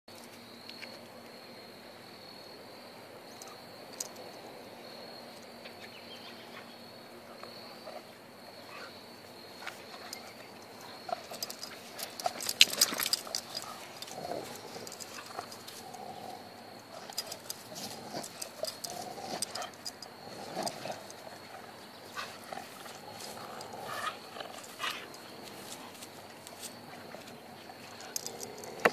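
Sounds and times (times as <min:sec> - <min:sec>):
high-pitched insect trill: 0:00.1 - 0:28.9
dogs play growling: 0:07.3 - 0:28.9
dogs scuffling with rubber toy: 0:11.2 - 0:16.1.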